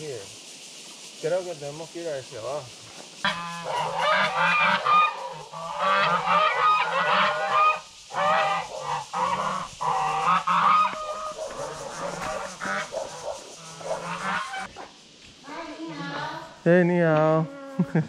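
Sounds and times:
geese honking: 3.2 - 14.7.

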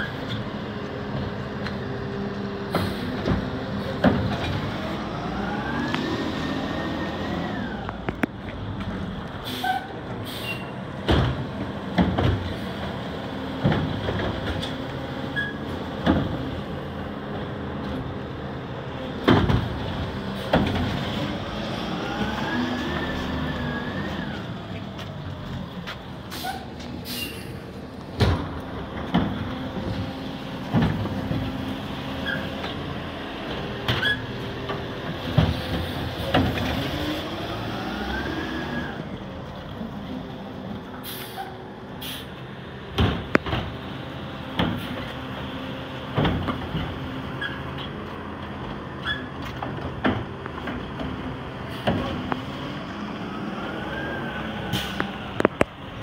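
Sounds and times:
garbage carts clunking and banging: 19.2 - 21.3, 28.1 - 31.6, 46.1 - 52.3.

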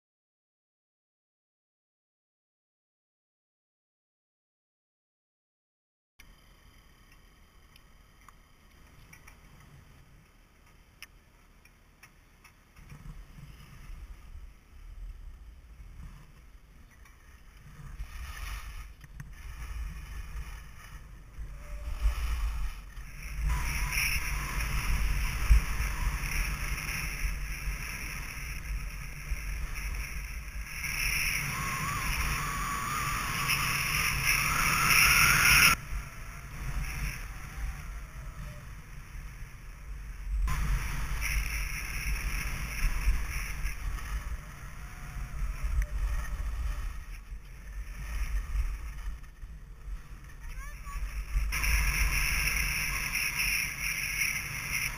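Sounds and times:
skis scraping over snow: 12.8 - 54.9
wind on microphone: 17.4 - 54.9.

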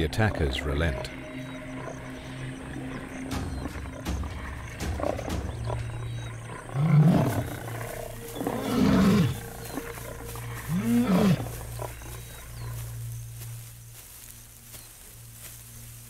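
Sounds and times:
lion roaring: 1.8 - 12.7.

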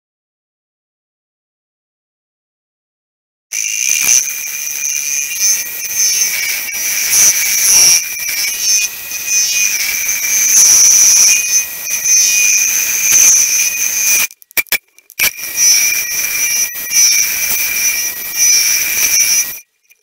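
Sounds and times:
metal lathe squealing: 3.6 - 14.3, 15.2 - 20.0.

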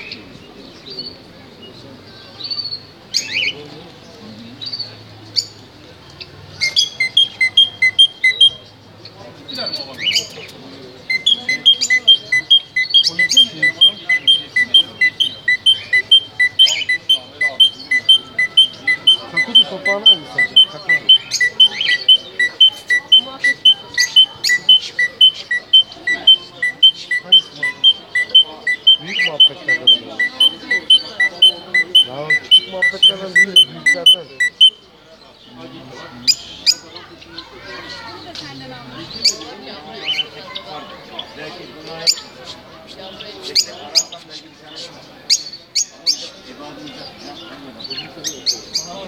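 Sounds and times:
birds chirping: 0.0 - 49.0
bird whistling notes: 6.6 - 8.6, 11.1 - 34.8
two-tone electronic beeping: 6.6 - 8.7, 11.1 - 34.8.

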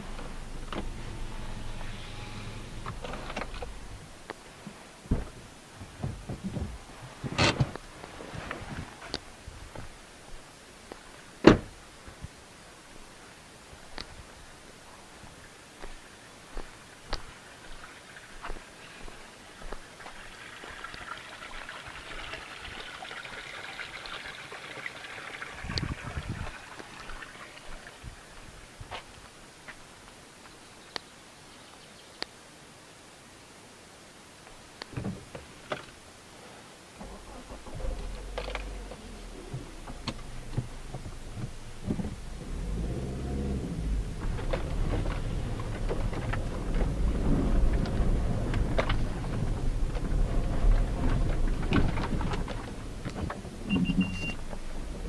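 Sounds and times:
rattles from bumps: 0.0 - 9.9, 37.0 - 55.0
car engine and tyre rumble: 0.0 - 30.3, 34.8 - 55.0
water trickling into stone basin: 16.9 - 28.4.

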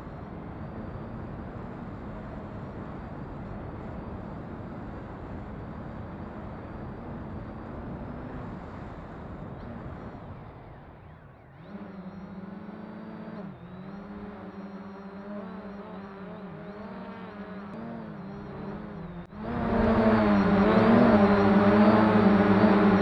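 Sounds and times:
propeller whine: 0.0 - 23.0
propellers droning: 0.0 - 23.0.

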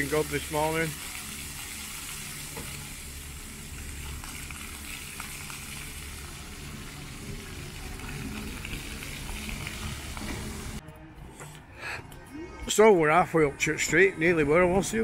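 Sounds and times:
fountain water splashing: 0.0 - 10.8.

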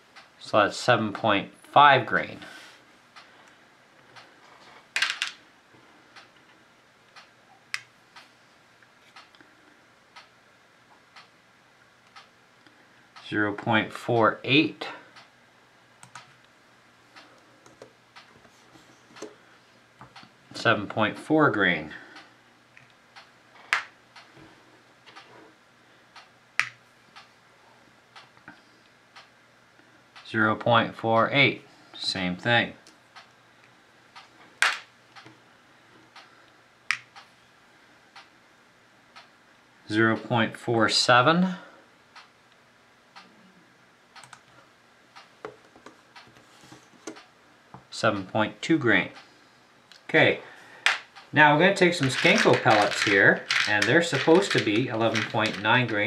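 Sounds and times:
faint steady ticking: 41.9 - 50.0
pellets rattling on scale: 51.9 - 56.0.

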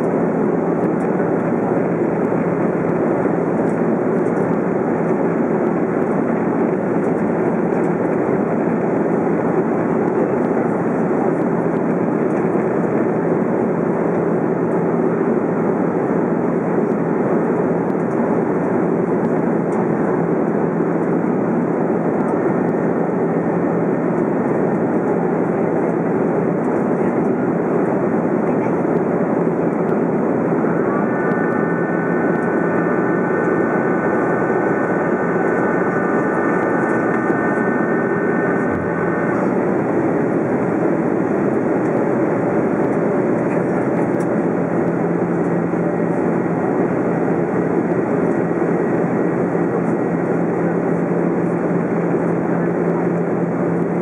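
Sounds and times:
jet engine cabin roar: 0.0 - 54.0
faint high whine: 19.3 - 54.0.

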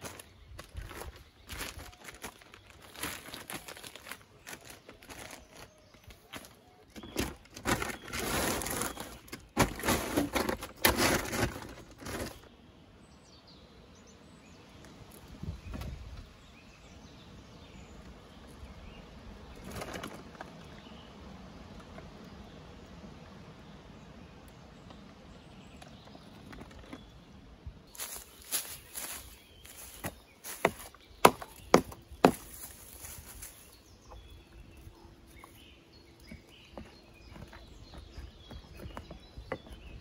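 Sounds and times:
plastic sheet crinkling: 1.0 - 6.2, 7.2 - 12.4.

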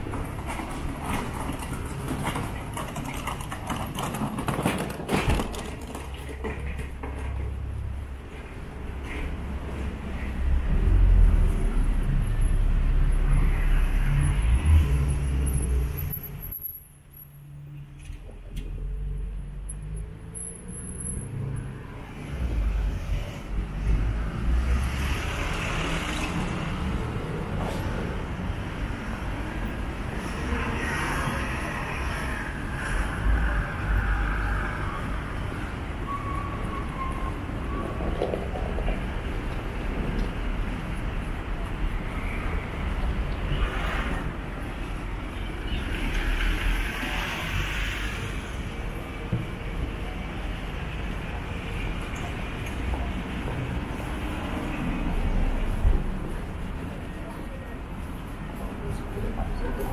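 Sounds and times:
street traffic rumble: 0.0 - 59.9
vehicles passing: 0.0 - 59.9
tyres hissing on road: 45.7 - 49.2.

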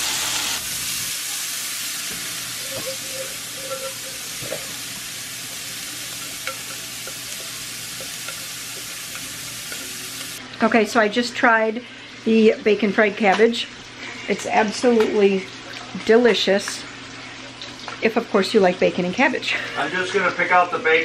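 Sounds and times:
food sizzling in a skillet: 0.0 - 10.4.

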